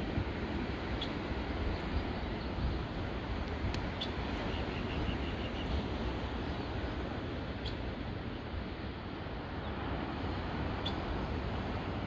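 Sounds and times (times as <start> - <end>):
wind rumbling on microphone: 0.0 - 12.0.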